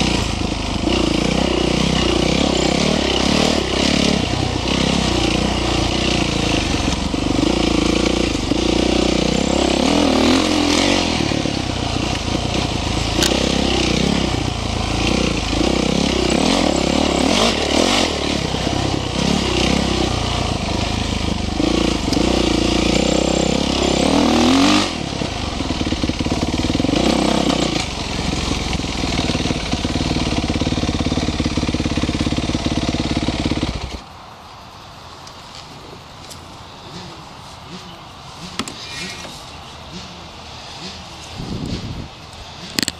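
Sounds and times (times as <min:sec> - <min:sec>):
dirt bike engine revving: 0:00.0 - 0:34.0.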